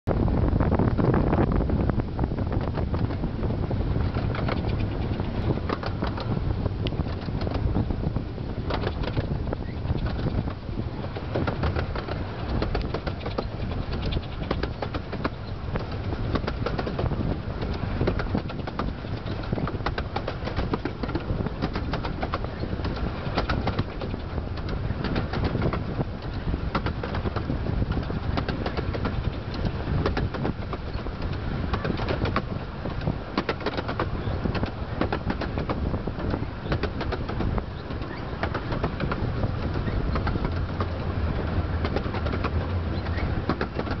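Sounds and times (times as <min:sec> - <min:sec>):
train rumble: 0:00.1 - 0:44.0
wheels clicking on track: 0:02.2 - 0:44.0.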